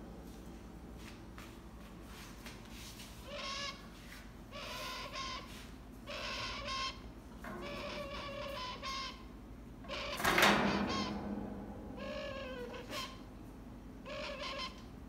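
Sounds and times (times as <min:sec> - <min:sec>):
toucan croaking calls: 0:04.5 - 0:11.2, 0:12.0 - 0:13.3, 0:14.0 - 0:15.0.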